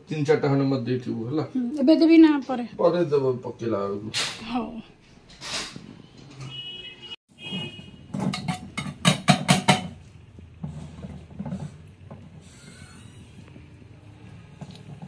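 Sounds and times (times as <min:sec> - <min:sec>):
metal knocking on a pot: 0:08.2 - 0:10.0.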